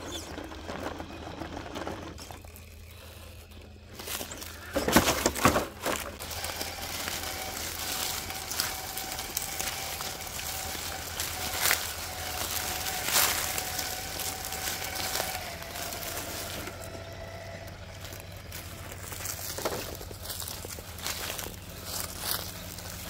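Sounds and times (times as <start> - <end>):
electric motor whine: 0.0 - 23.0
tyres crackling on leaves and gravel: 0.0 - 23.0.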